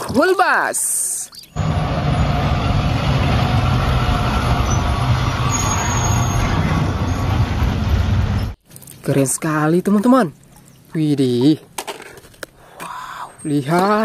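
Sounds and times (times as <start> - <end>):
bus driving past: 1.6 - 8.6.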